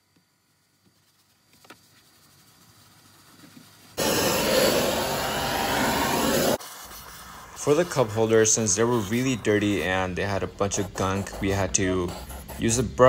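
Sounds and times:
air rushing from cleaning tool: 4.0s - 9.9s.

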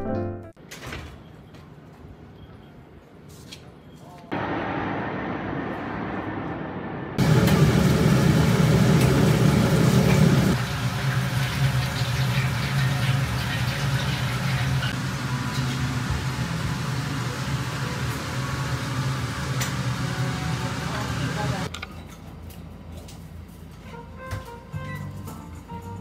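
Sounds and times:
low rushing: 4.3s - 8.8s
ventilation fan hum: 4.3s - 26.0s.

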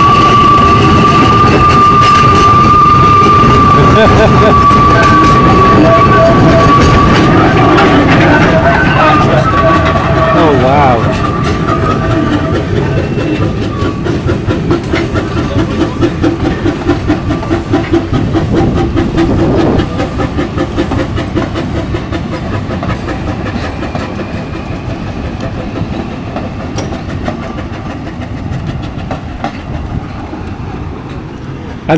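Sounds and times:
steam locomotive exhaust beating: 0.0s - 31.9s
train wheels rumbling and clicking: 0.0s - 31.9s.

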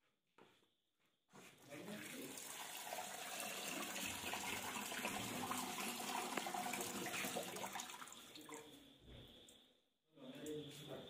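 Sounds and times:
tap water running into bowl: 1.7s - 8.7s.

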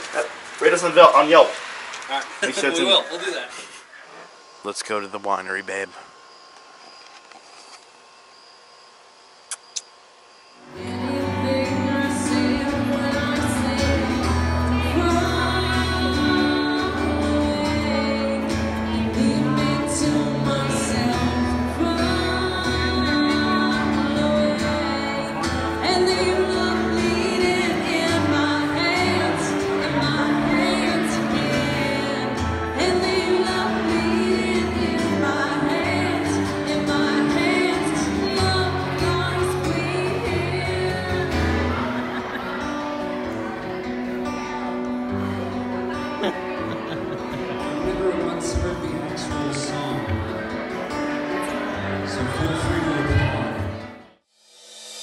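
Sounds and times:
acoustic guitar: 10.6s - 54.2s
woman singing: 10.7s - 42.1s.

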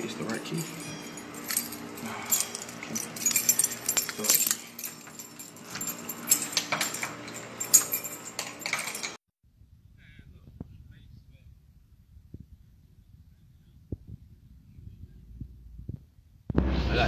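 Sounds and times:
keys jangling: 0.0s - 9.2s.

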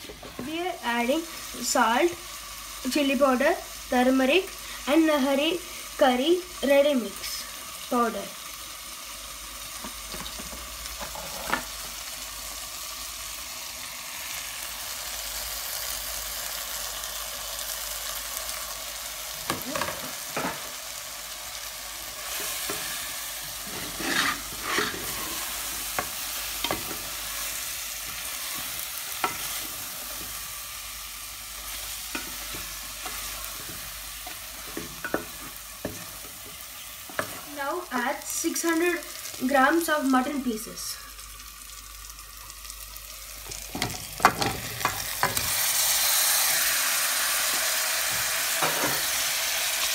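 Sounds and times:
masala sizzling in a pot: 0.0s - 49.9s
spatula scraping and knocking pot: 23.6s - 27.0s, 32.1s - 37.4s.

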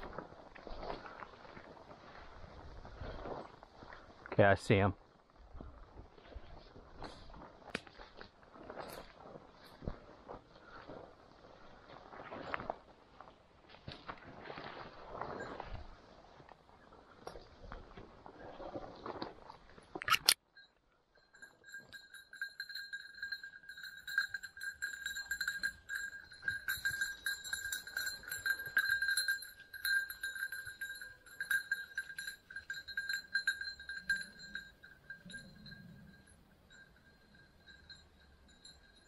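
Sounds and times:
dog collar bell jingling: 20.1s - 39.0s.

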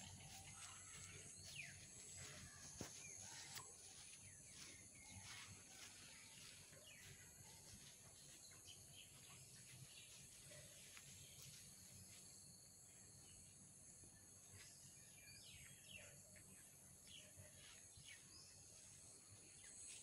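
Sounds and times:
bird chirps: 0.0s - 11.6s.

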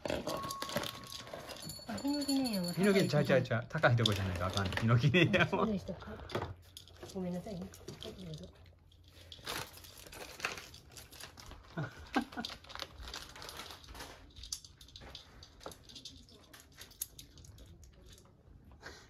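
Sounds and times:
cat crunching dry kibble: 3.8s - 5.6s, 6.2s - 18.7s.

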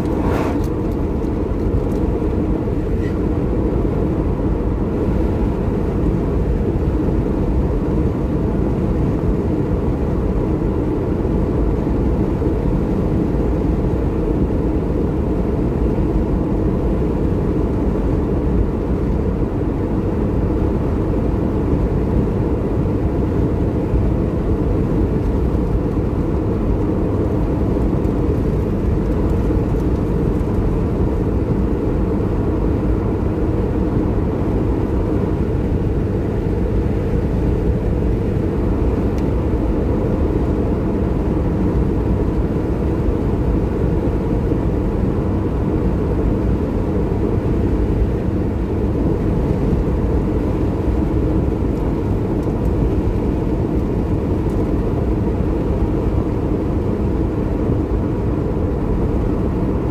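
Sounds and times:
passing vehicle rush: 0.0s - 1.7s
road and engine noise: 0.0s - 59.9s.

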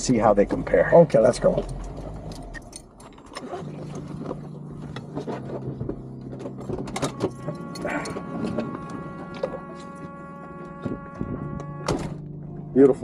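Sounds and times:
car doors opening and people climbing out: 0.0s - 12.8s
seatbelt unbuckling: 1.7s - 12.1s
steady high tone: 7.0s - 13.0s.

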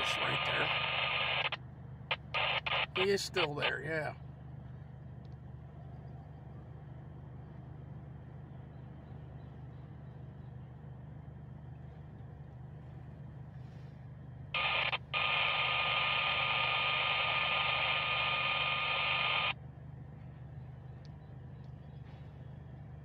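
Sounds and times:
radio blip: 0.0s - 3.7s, 14.6s - 19.6s
radio static with tones: 0.0s - 4.2s, 14.6s - 19.6s
low hum: 0.0s - 23.0s.

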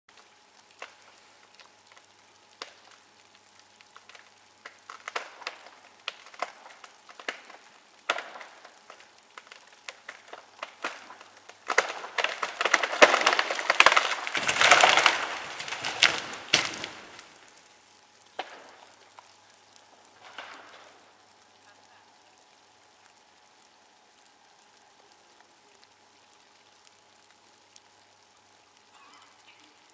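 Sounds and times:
branches cracking and snapping: 0.1s - 21.5s
splintering wood: 10.6s - 17.4s.

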